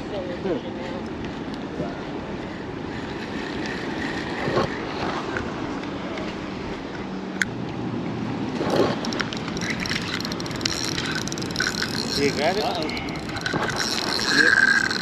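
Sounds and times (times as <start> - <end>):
fishing reel ticking: 2.8 - 4.8, 8.7 - 15.0.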